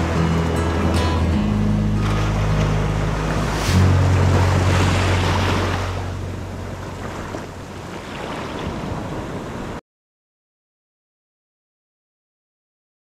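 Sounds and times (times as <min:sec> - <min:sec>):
low steady hum: 0:00.0 - 0:08.0
small waves breaking on beach: 0:02.0 - 0:09.8.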